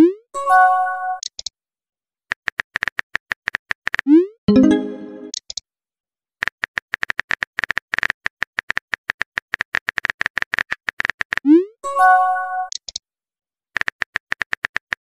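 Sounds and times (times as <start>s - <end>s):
brief multi-tone chime: 4.5s - 5.3s.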